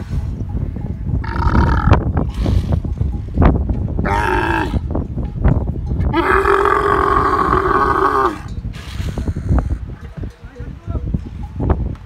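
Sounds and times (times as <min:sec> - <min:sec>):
camel calling: 0:01.2 - 0:02.9, 0:04.0 - 0:04.9, 0:06.0 - 0:08.5.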